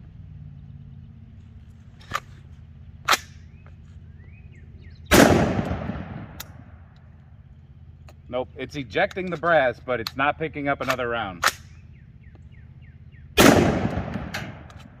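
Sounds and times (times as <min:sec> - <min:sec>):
rifle shot: 0:05.1 - 0:06.8, 0:13.4 - 0:15.0
sharp metallic clicks: 0:05.1 - 0:07.4, 0:08.0 - 0:12.6, 0:13.4 - 0:15.0.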